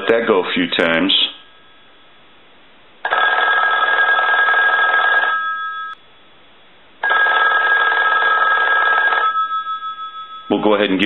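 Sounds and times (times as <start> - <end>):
telephone bell ringing: 3.1 - 6.0, 7.0 - 10.7.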